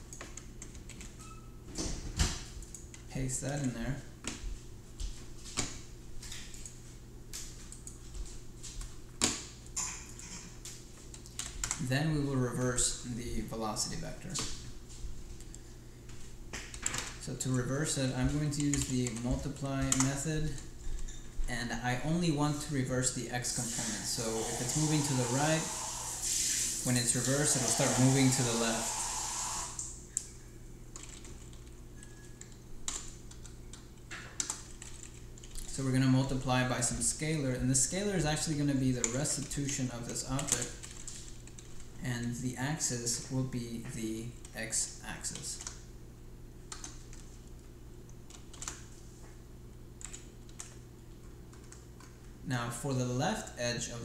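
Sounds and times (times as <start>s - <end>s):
faint low hum: 0.0s - 26.2s
low steady hum: 0.0s - 54.0s
keyboard keys clicking: 31.0s - 31.7s.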